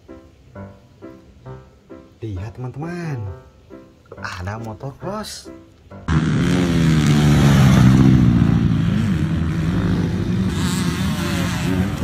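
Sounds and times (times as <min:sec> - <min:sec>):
dirt bike engine revving: 0:06.1 - 0:12.0.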